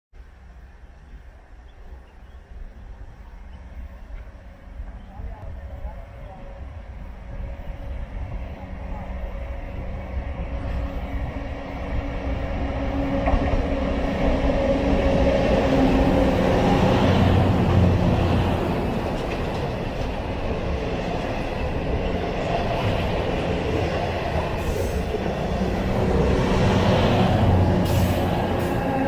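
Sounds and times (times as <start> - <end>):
steel wheels rumbling on rails: 0.2 - 29.0
diesel engines running: 23.1 - 29.0.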